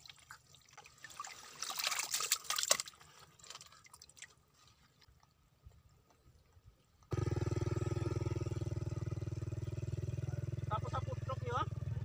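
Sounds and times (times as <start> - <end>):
water dripping in mud: 0.0 - 5.4
motorcycle engine running: 7.1 - 12.0.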